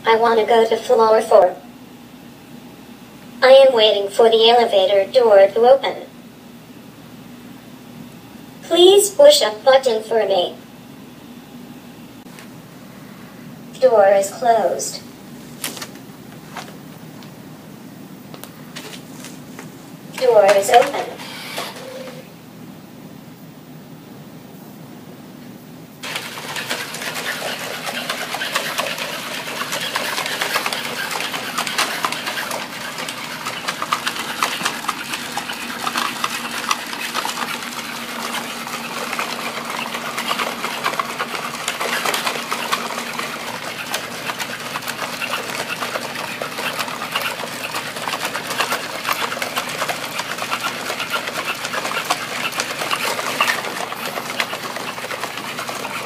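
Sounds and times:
robot motors whirring and clicking: 26.0 - 56.0.

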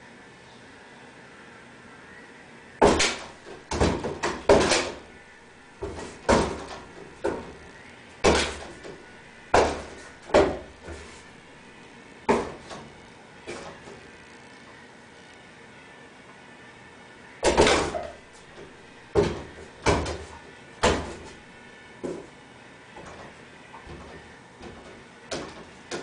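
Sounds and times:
closet doors banging and rattling: 2.8 - 5.2, 5.8 - 7.6, 8.2 - 11.2, 12.3 - 12.9, 17.4 - 21.4, 23.0 - 26.0.

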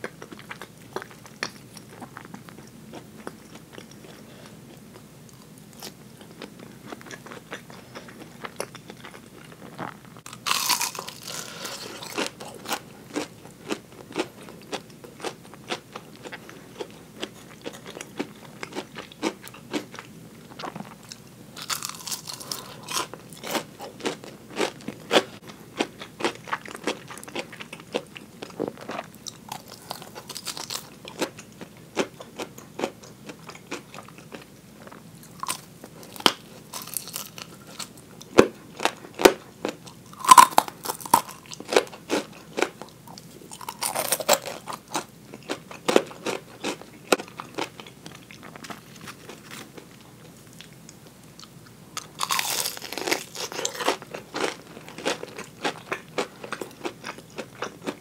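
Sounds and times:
crunching fried chicken: 0.0 - 58.0.

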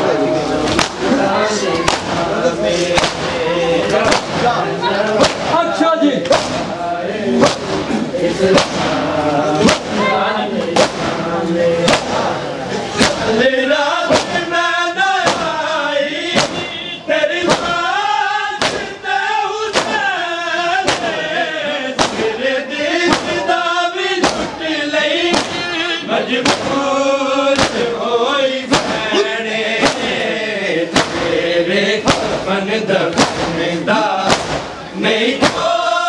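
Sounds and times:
men chanting in chorus: 0.0 - 36.0
hands slapping chests: 0.7 - 1.1, 1.8 - 2.2, 3.0 - 4.5, 5.2 - 5.6, 6.2 - 6.7, 8.5 - 9.0, 9.6 - 10.0, 11.9 - 12.2, 14.1 - 14.4, 18.6 - 18.9, 19.7 - 20.0, 22.0 - 22.2, 23.1 - 23.4, 24.2 - 24.5, 26.4 - 26.8, 27.5 - 27.8, 29.8 - 30.1, 30.9 - 31.3, 32.0 - 32.4, 33.1 - 33.6, 34.3 - 34.8.

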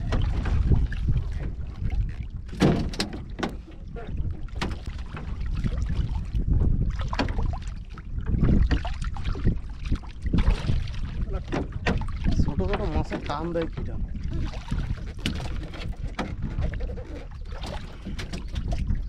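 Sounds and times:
knocks and clicks on boat: 0.0 - 19.0
water slapping against boat: 0.0 - 19.0
wind buffeting microphone: 0.0 - 19.0.

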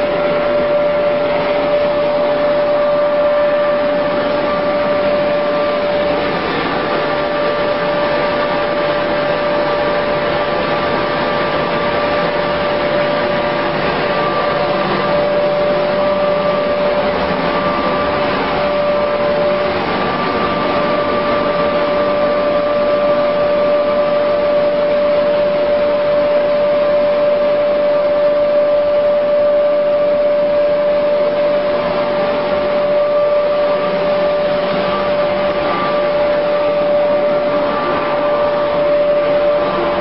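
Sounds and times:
high-pitched motor whine: 0.0 - 40.0
machinery running: 0.0 - 40.0.

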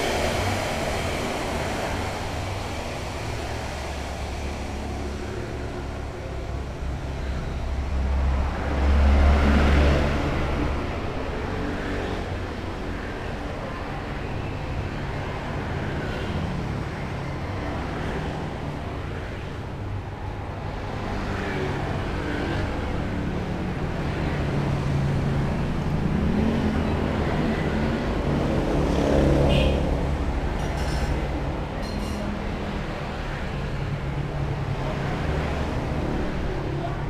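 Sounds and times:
vehicle passing close by: 0.0 - 12.3, 24.8 - 30.6
vehicle engines running: 0.0 - 15.8.

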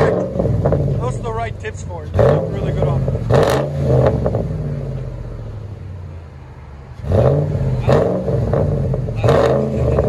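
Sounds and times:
truck engine idling: 0.0 - 3.4.

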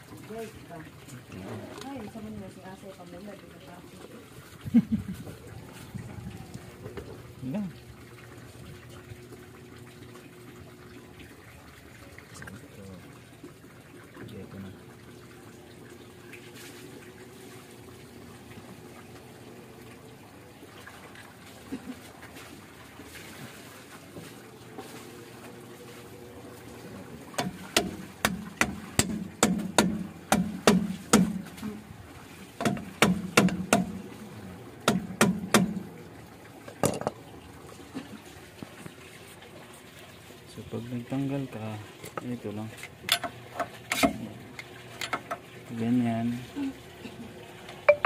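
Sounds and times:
hammer knocking on metal: 27.4 - 31.4, 32.6 - 33.9.

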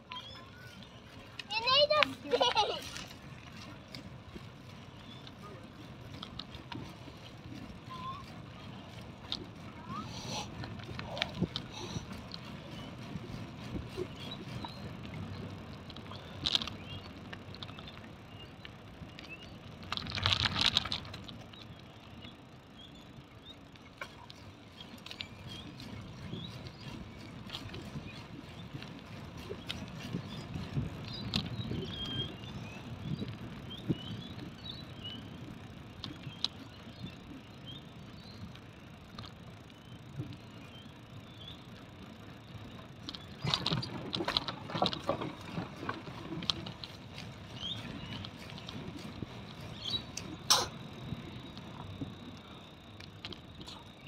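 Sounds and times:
birds chirping: 0.0 - 19.8, 20.6 - 54.0
bicycle tyres rumbling on asphalt: 0.0 - 54.0
wheels clattering over wooden planks: 42.9 - 52.2.

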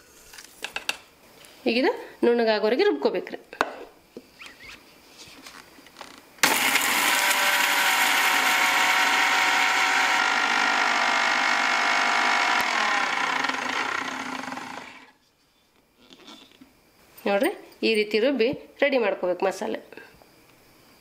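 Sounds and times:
mixer grinder motor: 6.4 - 15.1.

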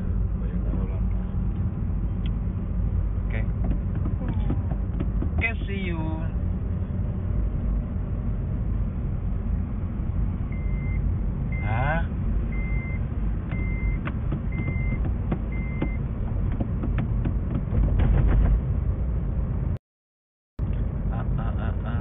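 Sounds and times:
car engine rumble: 0.0 - 19.8, 20.6 - 22.0
car warning beeps: 10.5 - 11.9, 12.5 - 16.1.

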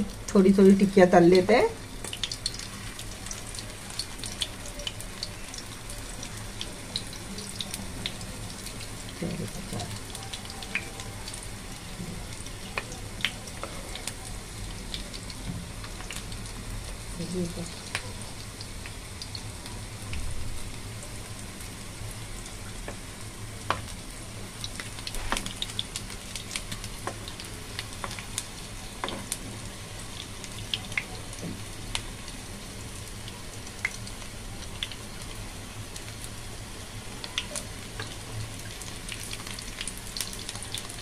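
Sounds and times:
patties sizzling in hot oil: 0.0 - 41.0.

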